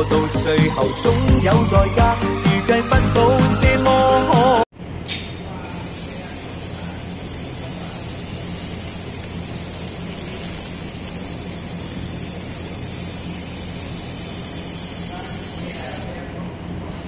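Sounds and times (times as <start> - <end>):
welding machine hiss: 5.6 - 16.2.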